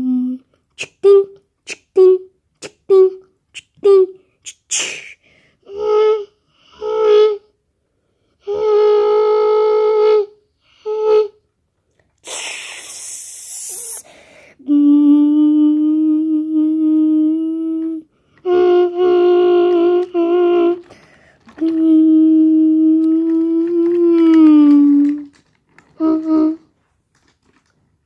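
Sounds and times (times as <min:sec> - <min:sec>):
brief hiss: 0:12.2 - 0:14.1.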